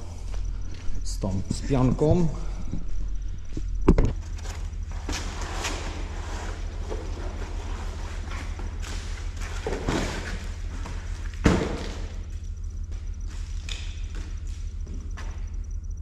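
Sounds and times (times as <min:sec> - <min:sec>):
box thudding on concrete floor: 0:09.6 - 0:12.1.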